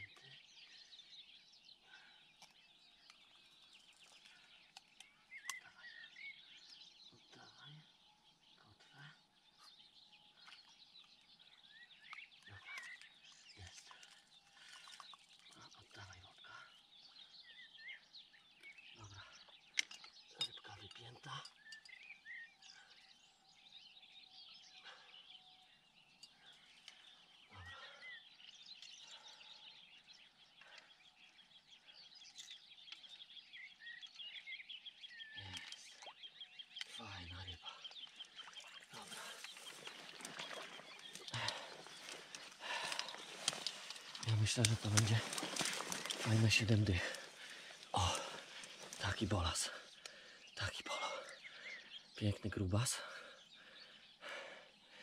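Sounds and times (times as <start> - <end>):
birds chirping and trilling: 0.0 - 55.0
clicks and rustles of landing net: 43.1 - 46.4.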